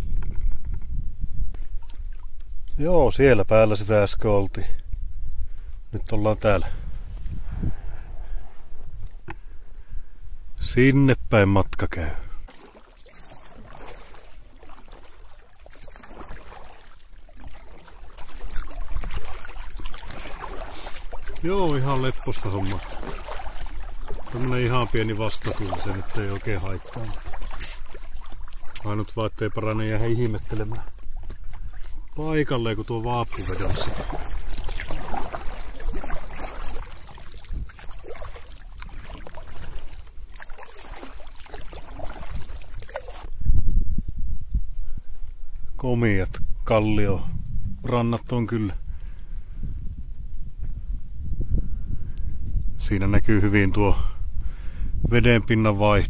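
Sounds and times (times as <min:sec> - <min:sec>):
wind rumble on microphone: 0:00.0 - 0:11.4, 0:17.4 - 0:56.0
paddle dips: 0:01.6 - 0:02.8, 0:11.8 - 0:43.5
water splashing and trickling: 0:01.6 - 0:04.2, 0:11.9 - 0:43.5.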